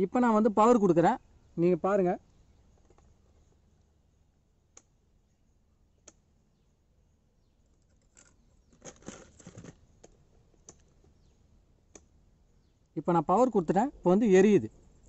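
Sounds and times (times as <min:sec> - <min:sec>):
faint sharp clicks: 0:04.7 - 0:05.0, 0:06.0 - 0:06.3, 0:10.0 - 0:11.2, 0:11.9 - 0:12.2
rustling: 0:07.8 - 0:11.1.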